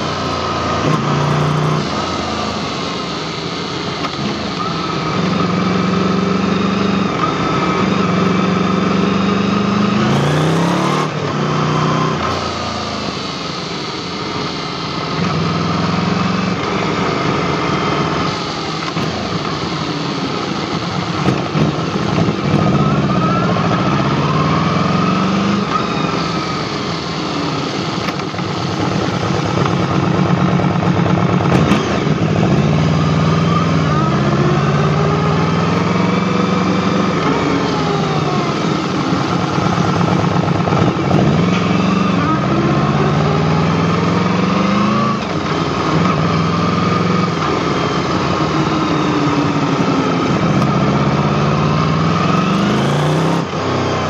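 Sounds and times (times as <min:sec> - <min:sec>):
motorcycle engine revving: 0:00.0 - 0:54.0
road and wind noise: 0:00.0 - 0:54.0.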